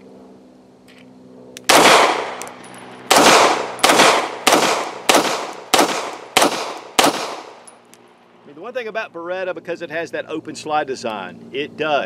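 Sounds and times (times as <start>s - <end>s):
pistol shots echoing: 1.6s - 7.7s.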